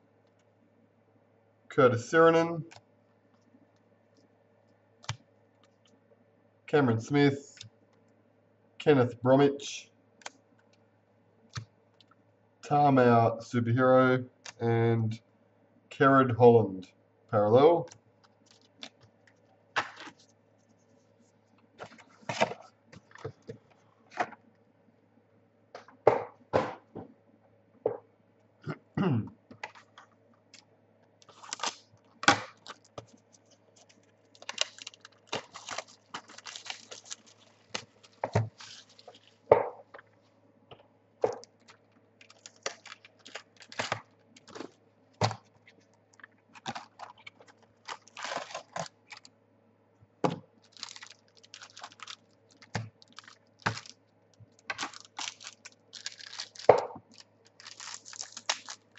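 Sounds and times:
faint steady hum: 0:00.0 - 0:58.9
wrappers and cards crinkling: 0:18.2 - 0:23.7, 0:31.2 - 0:40.1, 0:41.3 - 0:49.3, 0:50.6 - 0:58.9.

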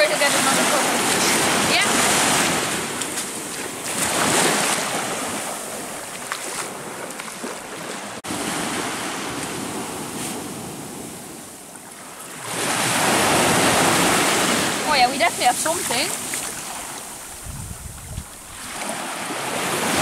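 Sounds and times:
surf washing onto beach: 0:12.3 - 0:20.0
wind buffeting microphone: 0:13.0 - 0:20.0.

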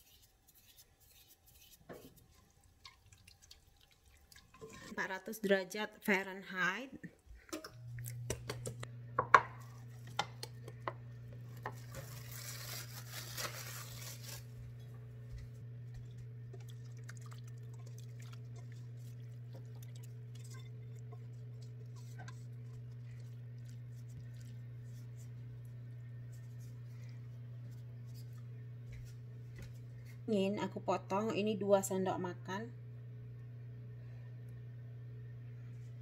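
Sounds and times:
steady low hum: 0:07.0 - 0:36.0
steel pot and spoon clinking: 0:19.8 - 0:22.8
light scraping and spreading: 0:19.9 - 0:25.4.

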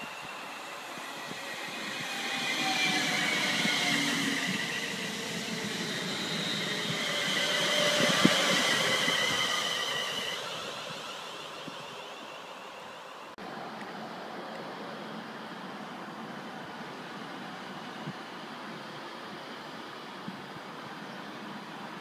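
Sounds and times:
electric train whine: 0:00.0 - 0:13.7.

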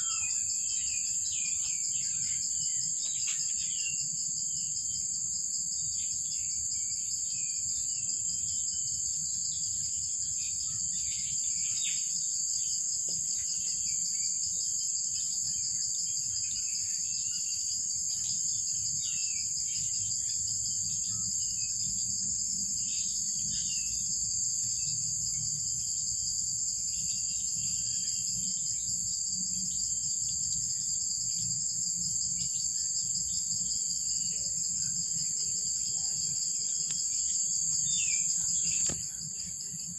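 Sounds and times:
faint bird chirps: 0:00.0 - 0:04.1, 0:34.2 - 0:39.9
high-pitched insect chorus: 0:00.0 - 0:39.9.

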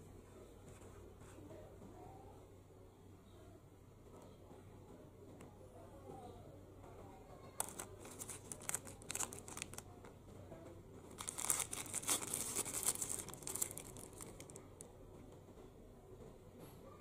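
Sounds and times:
plastic bag crinkling: 0:07.6 - 0:10.0, 0:11.1 - 0:14.7.

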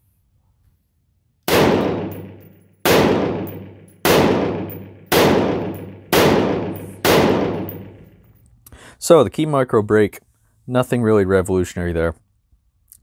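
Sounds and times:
rifle shots ringing out: 0:01.5 - 0:08.3.

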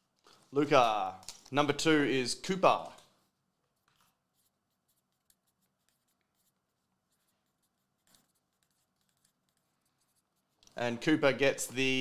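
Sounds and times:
pen scratching on paper: 0:03.8 - 0:10.6.

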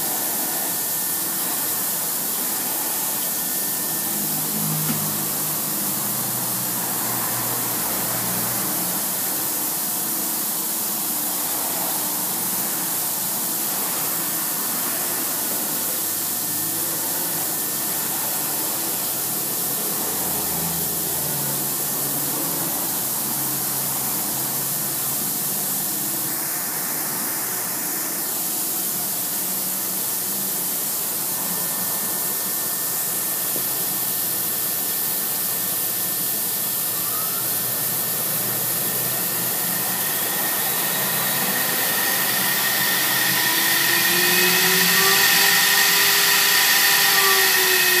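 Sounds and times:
steady high hiss: 0:00.0 - 0:48.0
milling machine axes whirring: 0:38.8 - 0:48.0.

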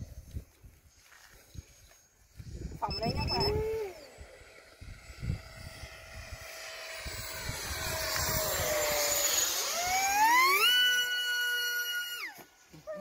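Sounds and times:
wind rumbling on microphone: 0:00.0 - 0:10.5
electric motor whining: 0:02.3 - 0:13.0.

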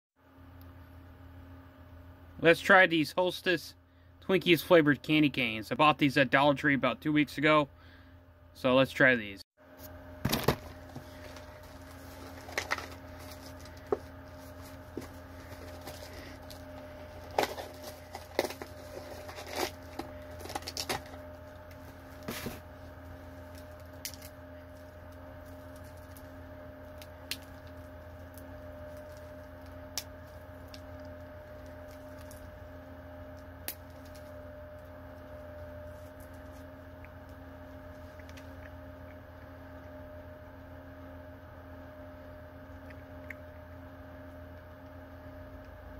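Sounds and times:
steady low hum: 0:00.2 - 0:45.9
plastic wrapper crinkling and tearing: 0:11.2 - 0:22.3.

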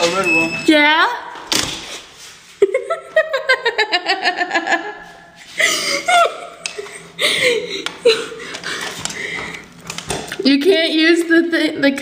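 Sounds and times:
person laughing: 0:02.6 - 0:09.0.

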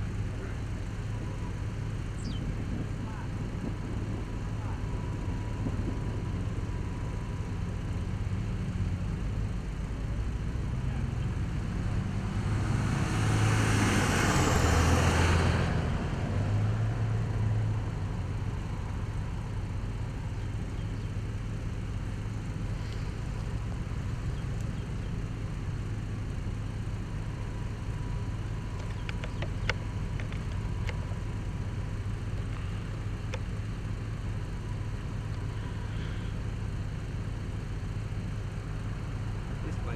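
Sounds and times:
low rumble: 0:00.0 - 0:39.9
vehicle passing by: 0:10.1 - 0:21.1, 0:34.4 - 0:36.7, 0:39.4 - 0:39.9
faint clicks: 0:28.8 - 0:31.0.

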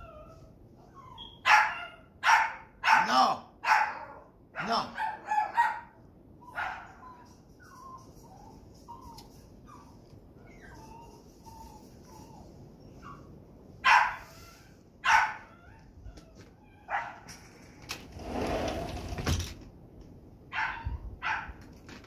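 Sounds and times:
small dog barking: 0:01.4 - 0:07.0, 0:13.8 - 0:14.3, 0:15.0 - 0:15.5, 0:16.9 - 0:17.3, 0:20.5 - 0:21.6.

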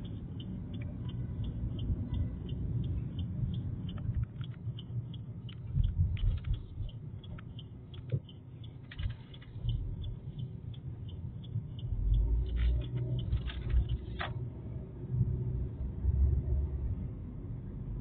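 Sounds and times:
regular light ticking: 0:00.0 - 0:14.2
scattered clicks: 0:00.0 - 0:14.4
engine and road rumble: 0:00.0 - 0:18.0.

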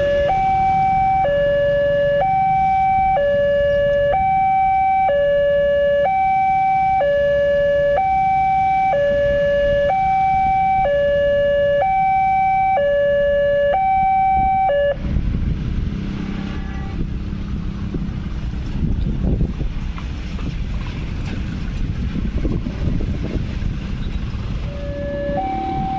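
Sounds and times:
level crossing alarm two-tone: 0:00.0 - 0:15.0, 0:24.7 - 0:25.9
car engines: 0:00.0 - 0:25.9
motorcycle engines: 0:00.0 - 0:25.9
wind noise: 0:06.8 - 0:25.9.

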